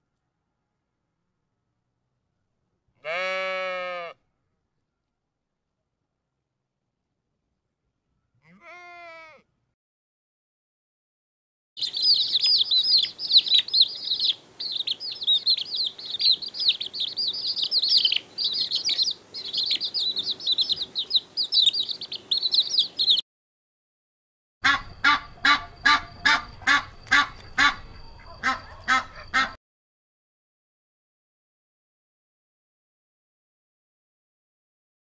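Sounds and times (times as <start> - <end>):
chicks peeping: 11.8 - 23.2
geese honking: 24.6 - 29.6.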